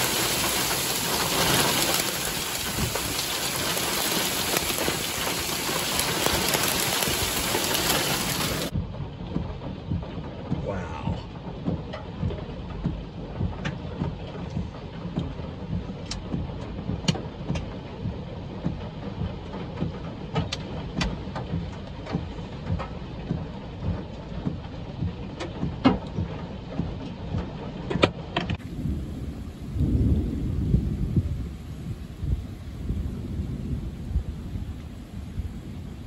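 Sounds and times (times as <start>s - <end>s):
hailstones cracking on hard surfaces: 0.0s - 8.7s
heavy rain: 0.0s - 8.8s, 28.6s - 36.0s
strong wind rumbling: 0.0s - 11.6s, 28.6s - 36.0s
deep low rumble: 0.0s - 27.6s, 28.6s - 36.0s.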